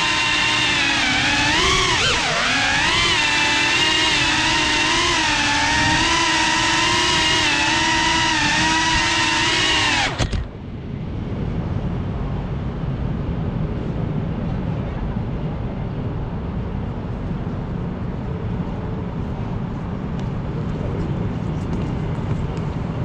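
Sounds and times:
drone motors whining: 0.0s - 10.6s
low background rumble: 0.0s - 23.0s.

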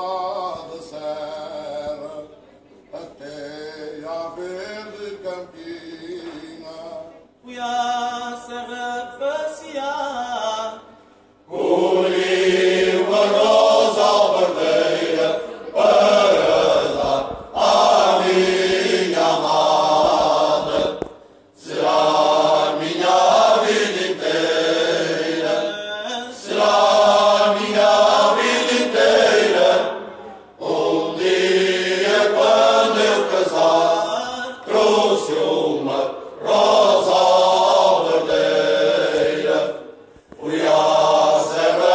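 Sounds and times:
male choir singing unaccompanied: 0.0s - 2.3s, 11.5s - 41.9s.

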